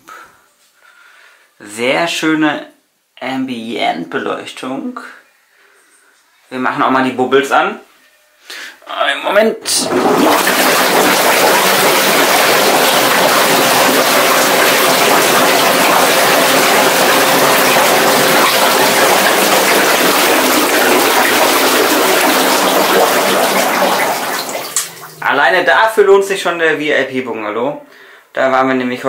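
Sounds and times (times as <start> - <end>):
water churning and bubbling: 9.8 - 25.4.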